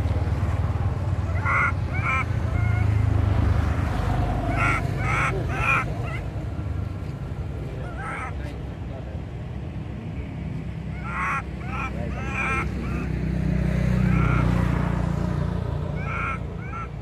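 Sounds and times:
baby monkey crying: 1.2s - 3.1s, 4.5s - 6.4s, 7.8s - 8.4s, 10.9s - 13.2s, 13.9s - 14.6s, 15.9s - 17.0s.

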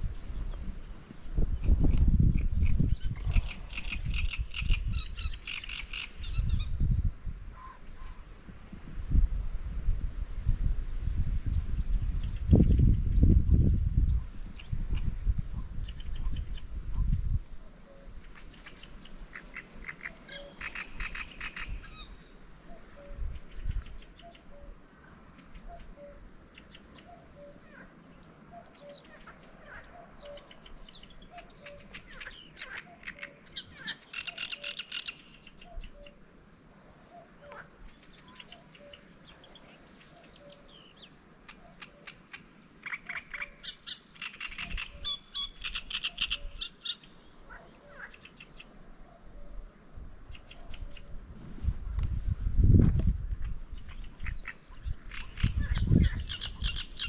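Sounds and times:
fast rattling frog calls: 1.6s - 6.6s, 18.3s - 22.1s, 29.2s - 35.8s, 41.5s - 48.7s, 53.4s - 57.0s.

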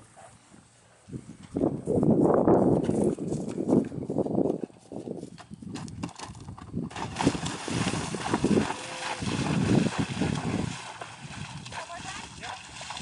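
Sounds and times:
horse hoofbeats: 2.8s - 13.0s
hooves splashing through water: 5.3s - 13.0s.

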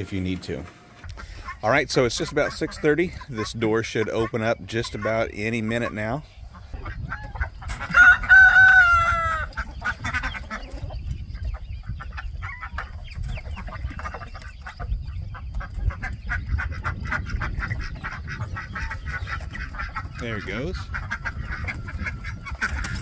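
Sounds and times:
hens clucking: 0.0s - 23.0s
rooster crowing: 7.9s - 9.5s.

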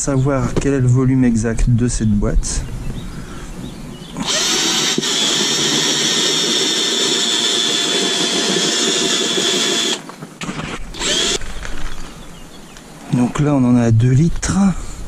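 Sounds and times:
cordless drill drilling plastic: 4.2s - 11.6s.

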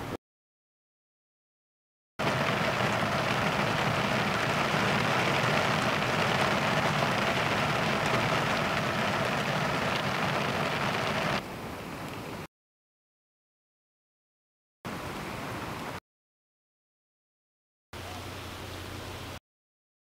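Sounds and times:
heavy rain falling: 2.2s - 11.4s.

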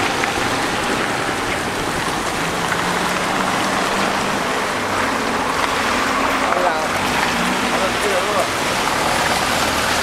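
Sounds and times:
traffic on wet road: 0.0s - 10.0s
tyres rolling through water: 0.0s - 10.0s.

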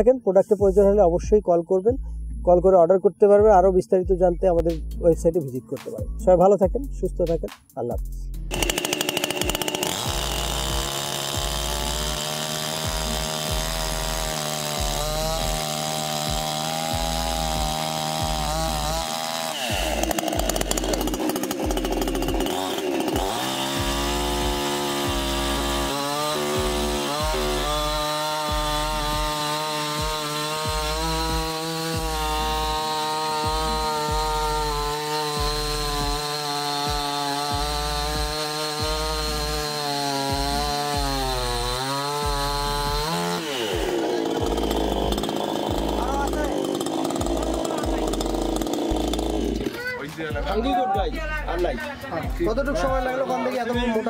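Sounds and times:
chainsaw cutting a log: 8.5s - 50.8s.

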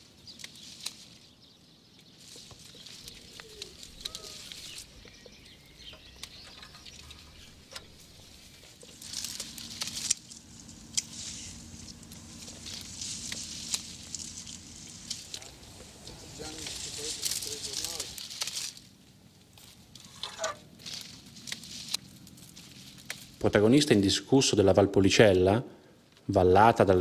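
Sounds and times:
rustling vine leaves: 0.0s - 27.0s
faint chirps: 2.0s - 18.1s.

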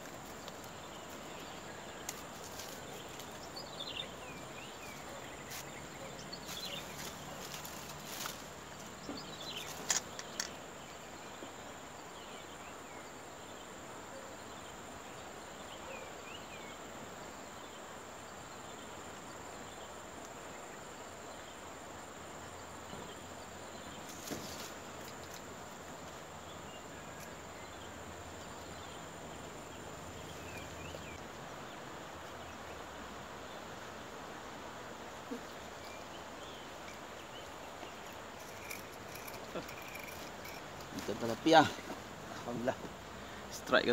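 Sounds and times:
fishing gear clicks and taps: 9.6s - 10.6s, 38.0s - 41.1s.

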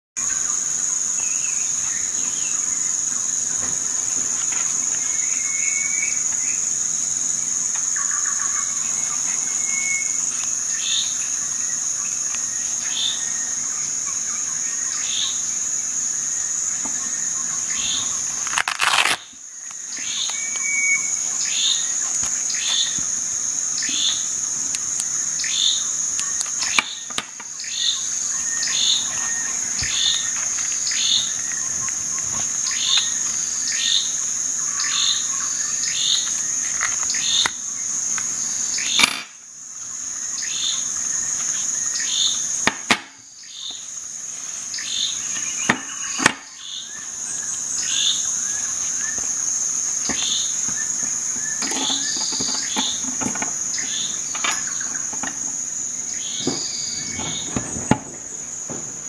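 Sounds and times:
insects trilling: 0.2s - 59.0s
bird chirping: 25.4s - 37.6s.

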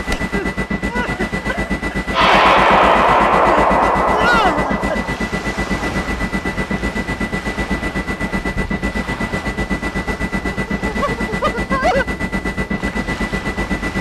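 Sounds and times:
wavering wail: 2.1s - 6.3s
rapid even pulsing: 2.1s - 6.5s
steady high-pitched tone: 2.1s - 7.0s.

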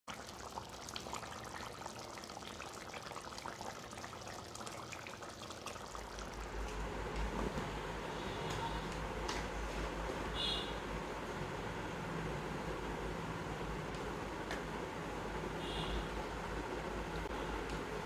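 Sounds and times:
curry bubbling and popping: 0.1s - 7.4s.

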